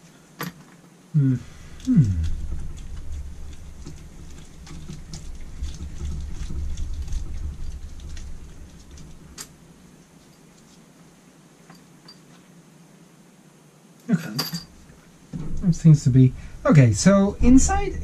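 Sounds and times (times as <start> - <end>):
metal parts clicking and scraping: 14.2 - 16.6.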